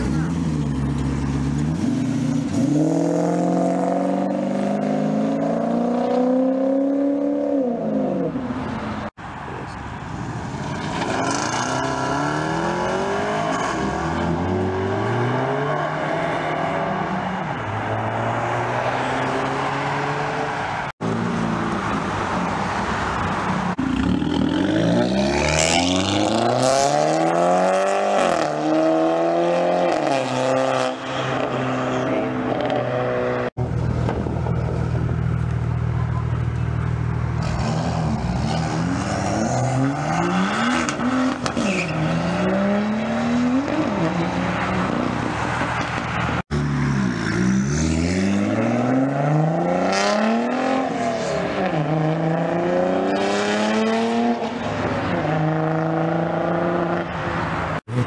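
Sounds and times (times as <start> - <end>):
cars accelerating: 0.0 - 9.7, 10.3 - 58.0
car engine revving hard: 46.5 - 54.6.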